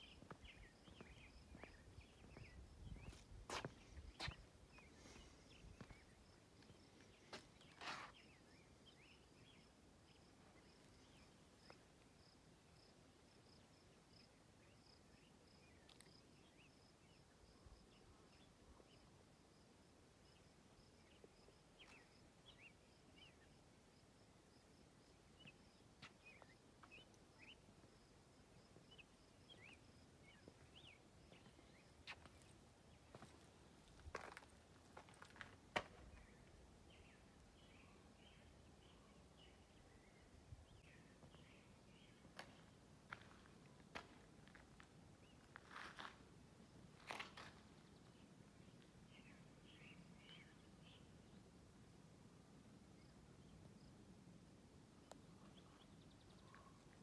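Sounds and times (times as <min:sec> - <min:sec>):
faint birds chirping: 0:00.0 - 0:57.0
soft footsteps: 0:00.1 - 0:08.2.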